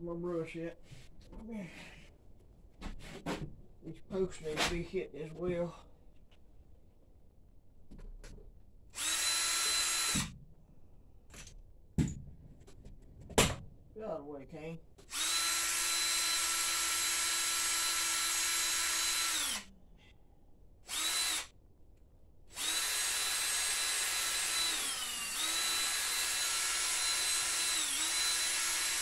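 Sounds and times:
cordless drill spinning brush: 9.0s - 10.3s, 15.1s - 19.7s, 20.9s - 21.5s, 22.5s - 29.0s.

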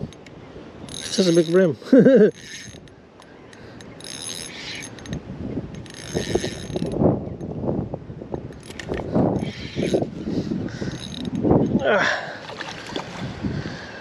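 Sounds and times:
fishing reel whirring ratchet: 0.9s - 1.7s, 2.3s - 5.2s, 5.8s - 7.0s, 8.6s - 11.5s.

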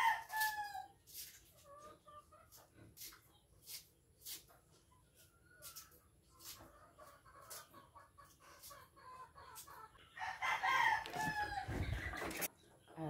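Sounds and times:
rooster crowing: 10.2s - 11.8s.

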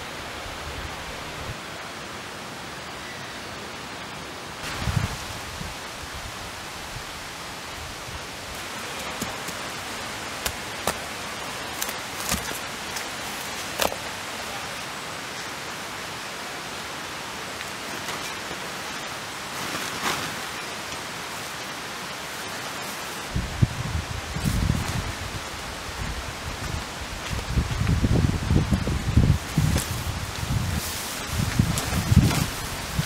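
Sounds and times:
steady outdoor hiss: 0.0s - 33.0s
tent fabric rustling: 19.4s - 20.8s, 29.4s - 33.0s.

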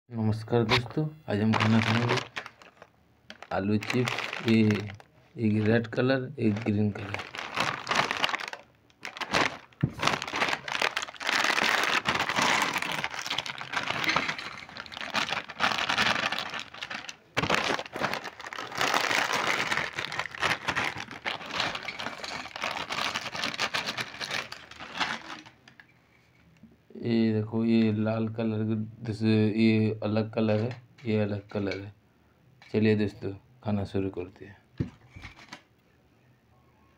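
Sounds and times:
foil packets crinkling: 1.4s - 5.8s, 6.4s - 25.8s.

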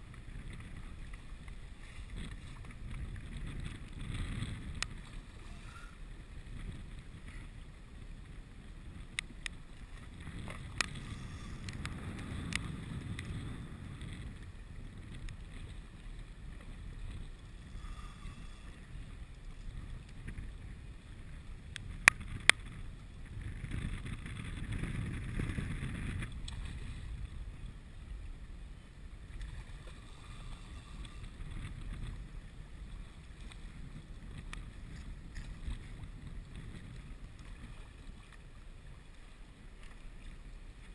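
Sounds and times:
wind buffeting microphone: 0.0s - 39.0s
choppy water lapping: 0.0s - 40.9s.

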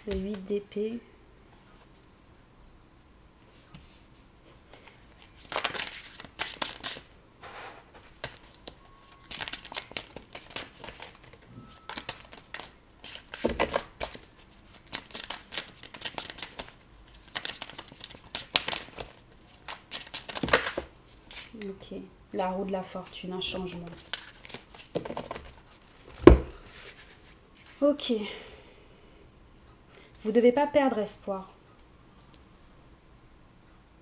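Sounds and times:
cards being shuffled: 4.7s - 21.6s, 23.0s - 27.8s
thud: 26.2s - 26.6s.

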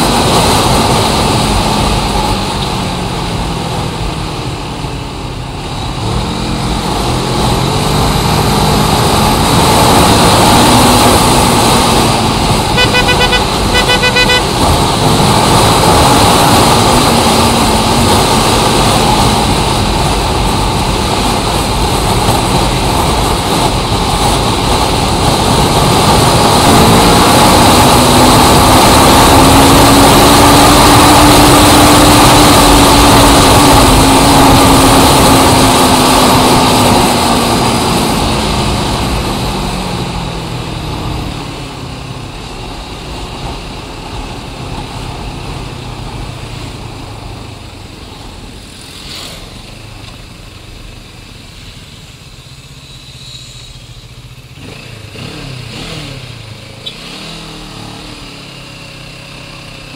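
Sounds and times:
engine drone passing: 6.2s - 17.6s.

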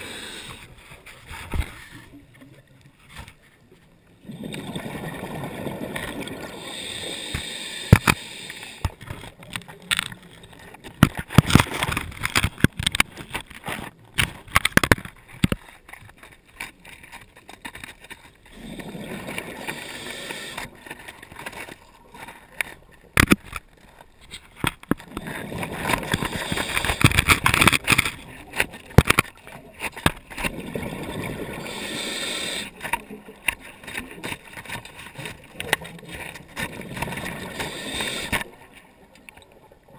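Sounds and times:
diver breathing underwater: 0.0s - 0.8s, 4.2s - 9.1s, 18.5s - 21.0s, 25.1s - 27.7s, 30.5s - 33.0s, 36.8s - 38.6s
exhaled bubbles rushing: 4.2s - 6.6s, 30.4s - 31.8s.

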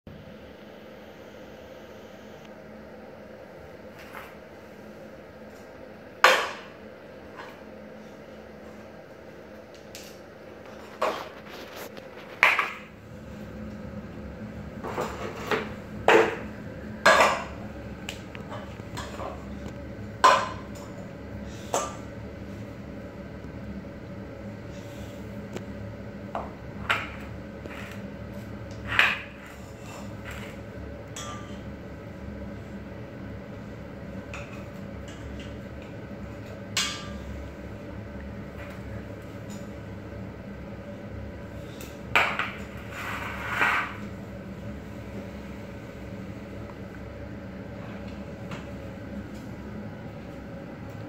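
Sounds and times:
steady low hum: 0.1s - 51.0s
pots and utensils clinking: 14.8s - 17.6s, 20.2s - 21.0s, 28.8s - 31.7s, 36.7s - 37.4s.

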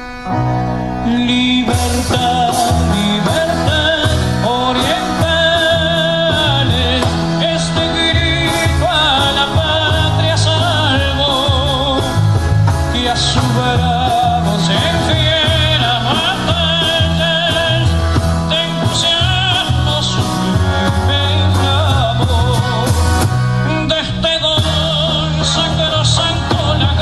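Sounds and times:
person singing: 0.0s - 12.2s
moving bass line: 0.0s - 27.0s.

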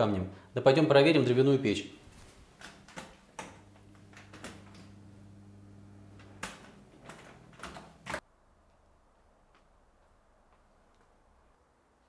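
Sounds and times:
oven humming: 3.4s - 8.2s.

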